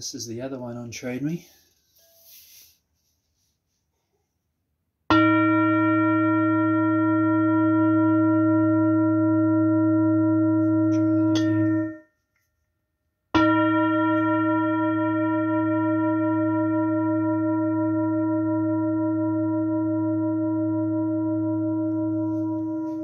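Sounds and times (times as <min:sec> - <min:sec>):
metal singing bowl ringing: 0:05.1 - 0:12.1, 0:13.4 - 0:23.0.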